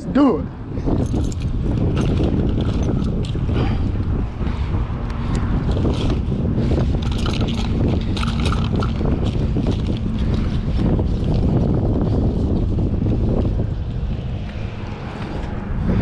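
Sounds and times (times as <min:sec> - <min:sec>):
wind buffeting microphone: 0:00.0 - 0:16.0
hands rummaging in fabric bag: 0:07.0 - 0:09.0.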